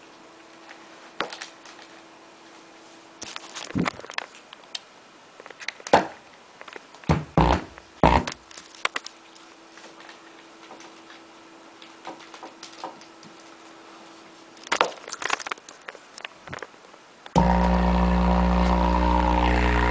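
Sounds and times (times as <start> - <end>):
faint steady hum: 0.0 - 19.9
handling knocks and rustles: 8.3 - 17.0.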